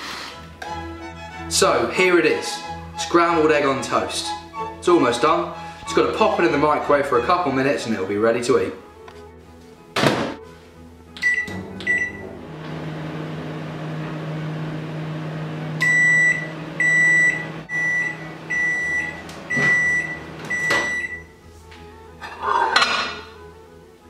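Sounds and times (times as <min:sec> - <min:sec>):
microwave keypad beeps: 0:11.2 - 0:12.3, 0:15.8 - 0:21.3
microwave finish beeps: 0:11.2 - 0:12.4, 0:15.8 - 0:21.3
microwave oven humming: 0:11.4 - 0:20.9.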